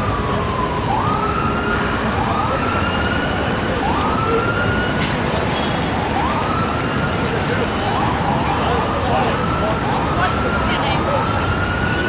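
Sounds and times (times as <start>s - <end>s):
busy city traffic: 0.0s - 12.0s
emergency vehicle siren: 0.0s - 12.0s.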